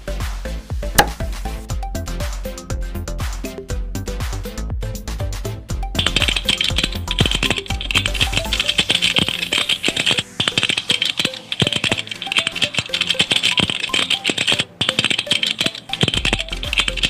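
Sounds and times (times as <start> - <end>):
background music: 0.0 - 17.0
keyboard typing clicks: 6.0 - 17.0.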